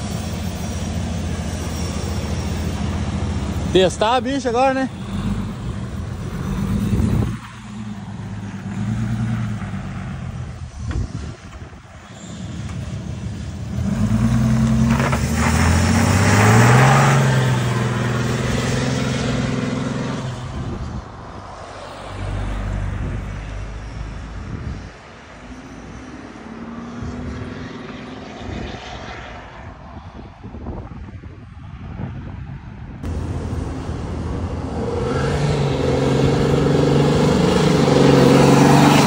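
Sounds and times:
diesel truck accelerating: 0.0s - 27.7s, 33.0s - 39.0s
low engine rumble: 33.0s - 38.2s.

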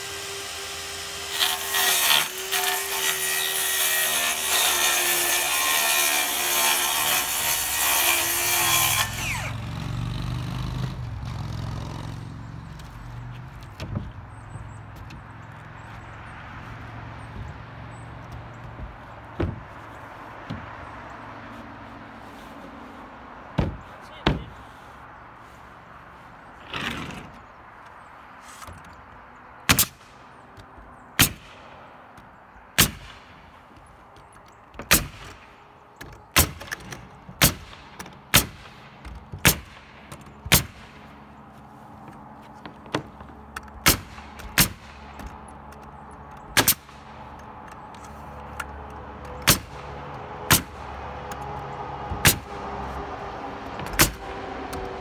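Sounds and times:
nail gun shots: 29.7s - 30.0s, 32.8s - 33.2s, 37.4s - 38.8s, 39.4s - 39.9s, 43.8s - 45.0s, 46.6s - 46.9s, 49.4s - 49.7s, 50.5s - 50.8s.

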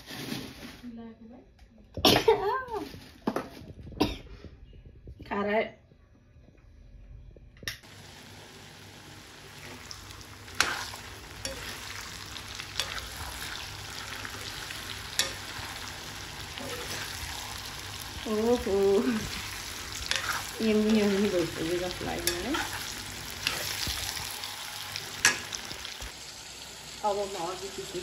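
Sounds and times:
mango sizzling in a wok: 7.8s - 28.0s.

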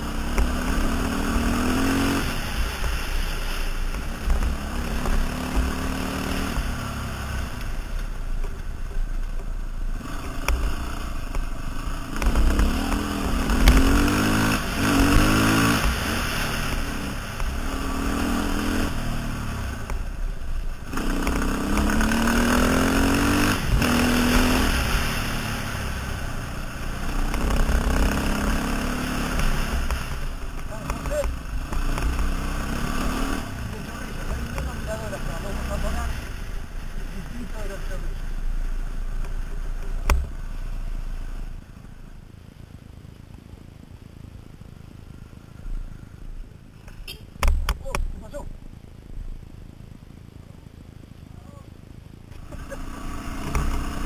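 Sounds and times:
dirt bike engine shifting gears: 0.0s - 40.8s, 52.3s - 54.0s
steady rushing noise: 0.0s - 54.0s.

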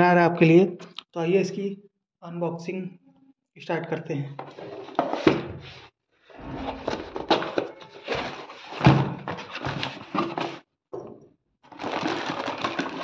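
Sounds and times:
plastic wrapping handled: 11.7s - 13.0s.

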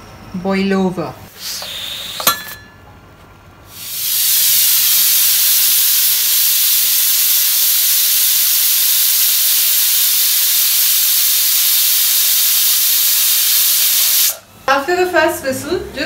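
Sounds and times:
pressure cooker whistling: 1.4s - 2.6s, 3.7s - 14.4s.

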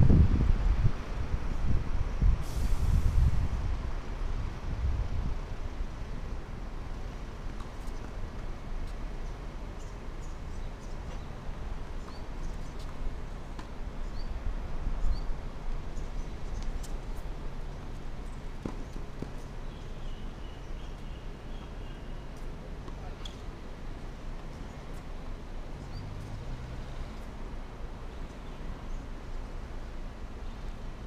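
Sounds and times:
wind rumble on microphone: 0.0s - 7.5s.

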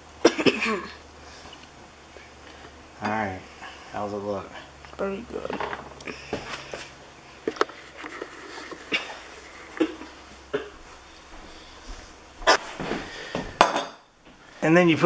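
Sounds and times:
plate clattering on wooden table: 13.6s - 14.0s.

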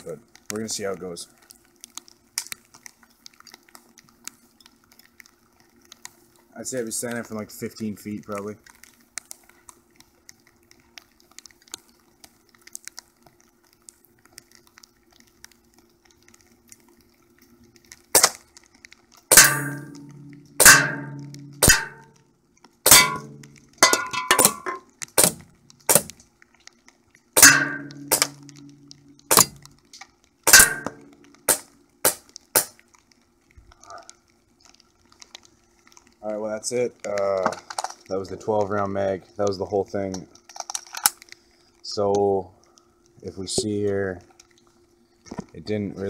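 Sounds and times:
airsoft pistol shots: 18.2s - 18.4s, 19.3s - 22.1s, 22.9s - 23.5s, 24.3s - 26.2s, 27.4s - 29.6s, 30.5s - 32.8s
pellets clanging on cans: 22.9s - 26.1s.

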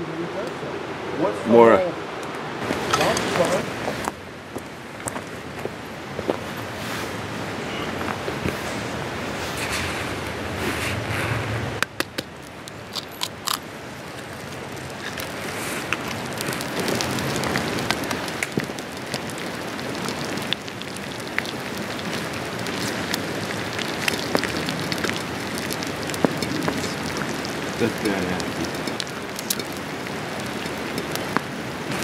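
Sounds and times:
eggs sizzling on hot stone: 12.4s - 32.0s.

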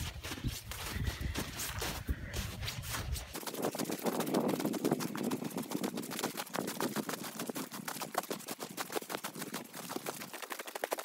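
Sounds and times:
footsteps crunching through snow: 0.0s - 6.6s.

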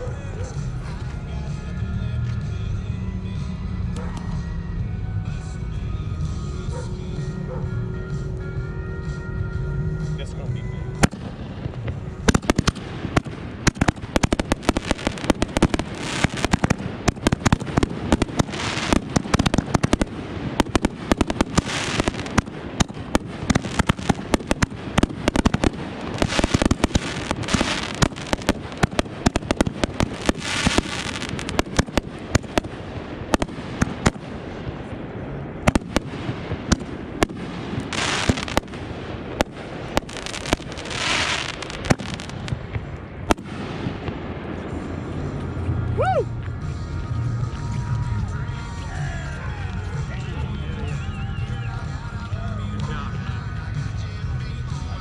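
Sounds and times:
hissing crackle: 11.0s - 45.5s
fireworks bangs and pops: 11.0s - 48.1s.

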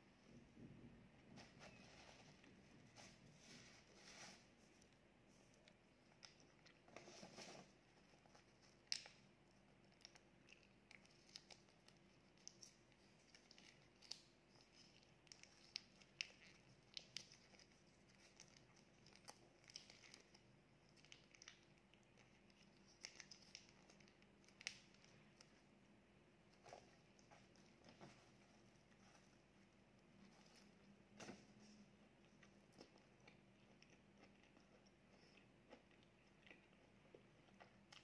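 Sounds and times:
plastic sachet crinkling and tearing: 8.4s - 25.6s.

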